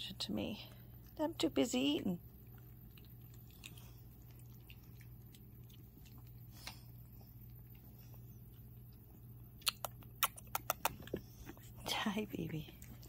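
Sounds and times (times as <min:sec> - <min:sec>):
dog crunching dry kibble: 0:02.4 - 0:06.8.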